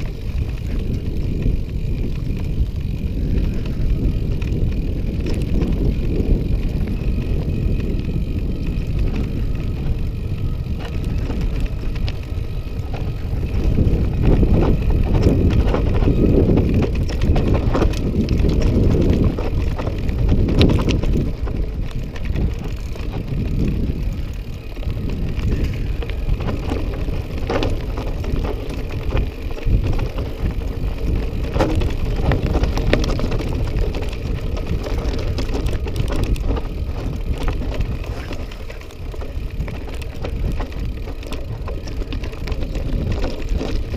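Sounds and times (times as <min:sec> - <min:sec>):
bike clicks and rattles: 0:00.0 - 0:43.9
tyres on dirt: 0:00.0 - 0:43.9
wind on microphone: 0:00.0 - 0:43.9.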